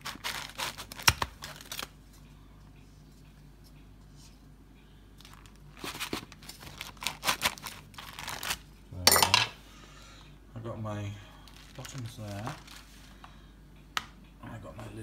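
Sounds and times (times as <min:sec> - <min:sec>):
pastry paper rustling and crinkling: 0:00.0 - 0:02.2, 0:05.2 - 0:08.7, 0:11.4 - 0:13.2.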